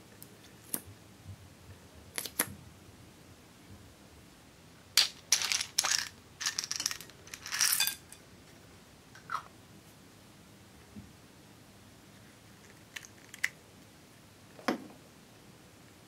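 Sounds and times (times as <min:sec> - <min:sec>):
cubes clattering onto glass bowl: 0:05.0 - 0:08.2.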